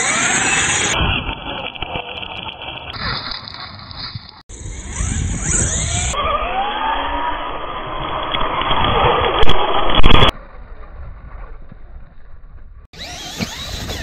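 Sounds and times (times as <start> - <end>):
electric motor whining: 0.0 - 2.8, 4.5 - 10.2, 13.0 - 14.0
tyres in sand and grit: 0.0 - 14.0.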